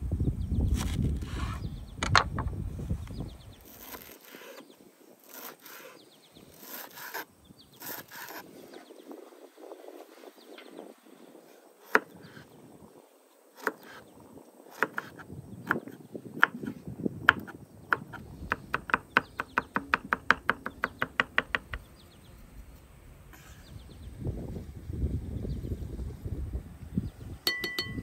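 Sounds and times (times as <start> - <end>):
knife chopping on wooden board: 14.8 - 16.7, 17.3 - 21.8.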